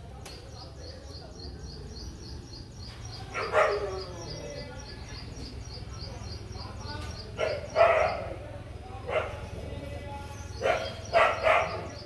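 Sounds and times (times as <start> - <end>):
dog barking: 3.3 - 4.1, 7.4 - 8.4, 9.0 - 9.5, 10.6 - 12.0.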